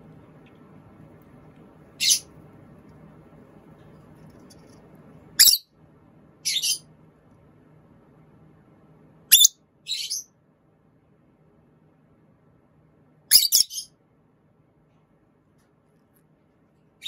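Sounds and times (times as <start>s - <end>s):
faint low hum: 0.0s - 17.0s
bird shrill chirps: 5.4s - 5.6s, 9.3s - 10.3s, 13.3s - 13.9s.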